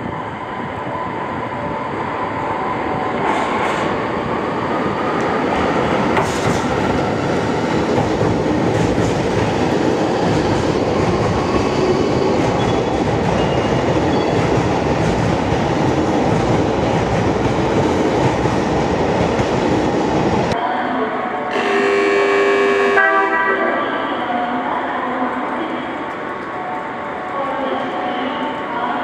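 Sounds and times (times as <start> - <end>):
train wheels rumbling on rails: 0.0 - 20.6.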